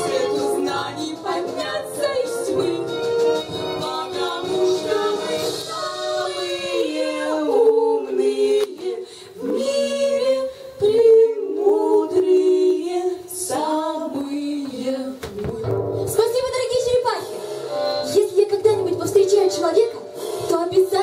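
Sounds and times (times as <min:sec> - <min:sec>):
women singing a cappella harmony: 0:00.0 - 0:15.8.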